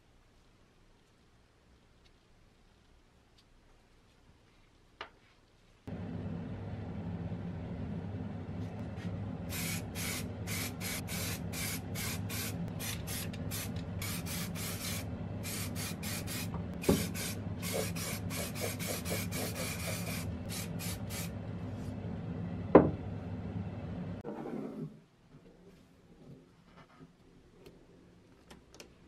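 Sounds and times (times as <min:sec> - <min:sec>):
steady low hum: 0:05.9 - 0:24.2
aerosol spray can hissing: 0:09.5 - 0:21.4.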